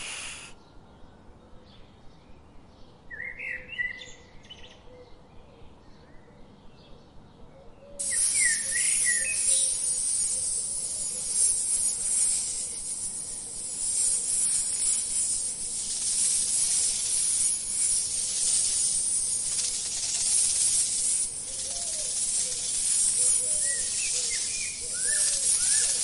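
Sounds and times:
rattlesnake rattling: 0.0 - 0.5, 8.0 - 26.0
bird chirps: 7.7 - 26.0.

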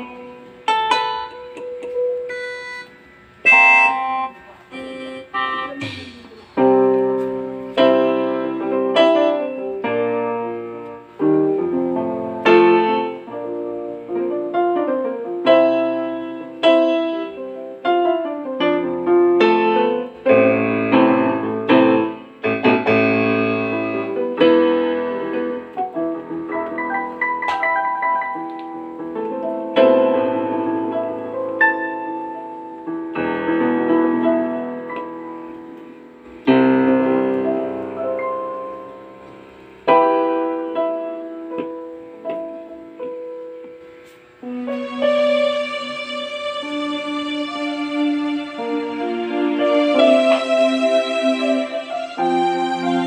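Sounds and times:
keyboard playing piano chords: 0.0 - 53.0.

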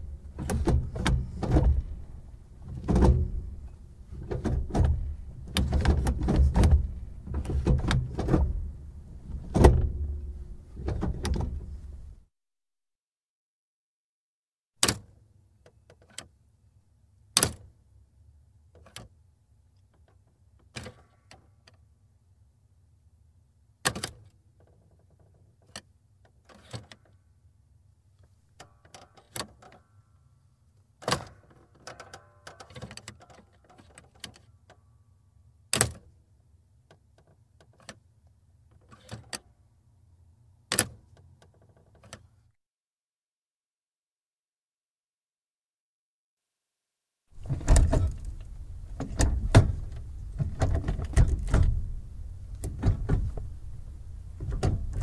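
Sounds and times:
gear selector clunks and clicks: 0.4 - 2.0, 47.4 - 53.6.

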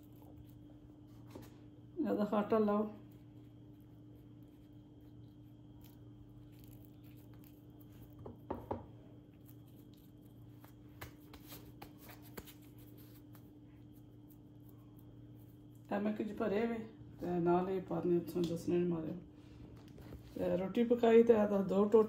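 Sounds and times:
hands folding pastry: 0.0 - 16.8
steady low hum: 0.0 - 22.0.

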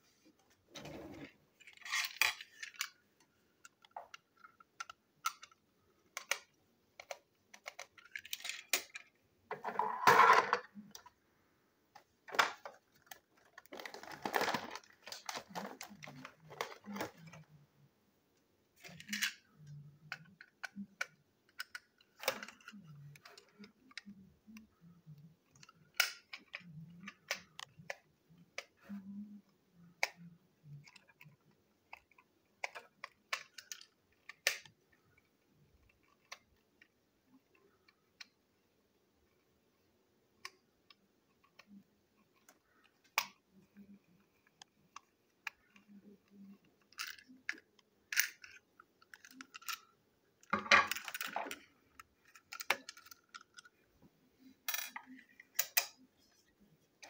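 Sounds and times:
plastic parts rattling scrape: 0.8 - 3.0, 7.0 - 10.7, 12.4 - 17.5
plastic toy clicks and knocks: 3.6 - 11.1, 18.8 - 24.6, 25.5 - 28.0, 30.0 - 34.8, 44.9 - 53.7, 54.7 - 56.1.

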